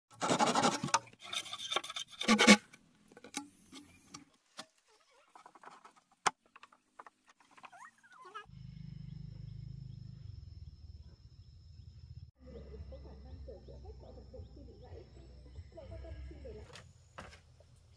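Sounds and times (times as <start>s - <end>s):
rasping scraping noise: 0.2s - 2.7s.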